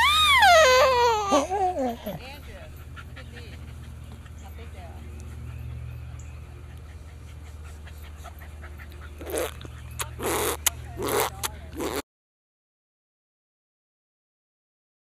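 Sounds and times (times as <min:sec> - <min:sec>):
baby whimpering: 0:00.0 - 0:02.0.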